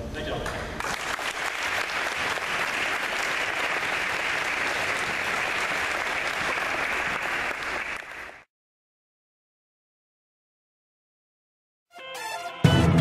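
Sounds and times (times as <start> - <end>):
audience applauding: 0.6 - 8.5.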